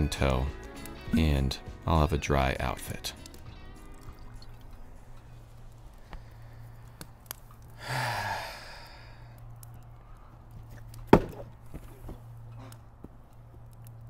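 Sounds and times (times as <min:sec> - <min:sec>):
wood fire crackling: 0:00.0 - 0:14.0
man sighing: 0:07.8 - 0:09.3.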